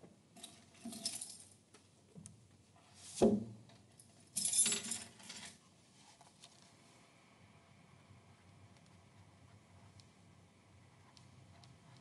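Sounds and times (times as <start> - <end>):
clinking jangling rattle: 4.4 - 5.5.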